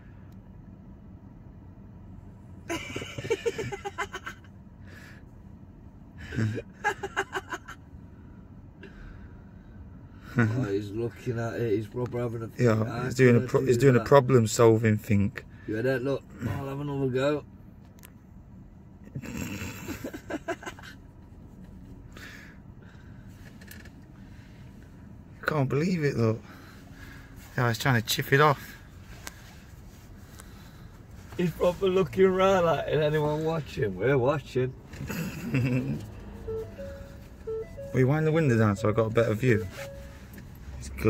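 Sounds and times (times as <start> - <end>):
stifled laughter: 35.1 - 36.1.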